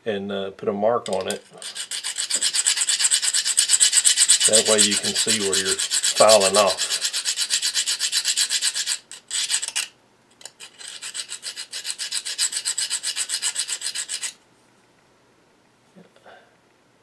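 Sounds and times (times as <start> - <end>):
file rasping on metal: 1.4 - 9.9, 10.5 - 14.4.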